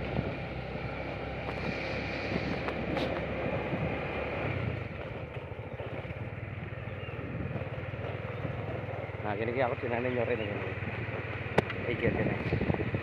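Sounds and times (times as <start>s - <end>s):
motorcycle engine running: 0.0s - 13.0s
wind noise on microphone: 1.4s - 5.0s, 6.6s - 7.8s, 10.9s - 13.0s.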